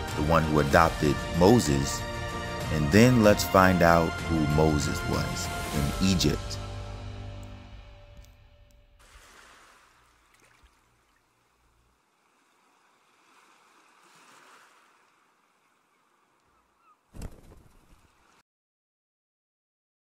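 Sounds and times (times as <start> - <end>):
birds' wings flapping: 16.8 - 18.4.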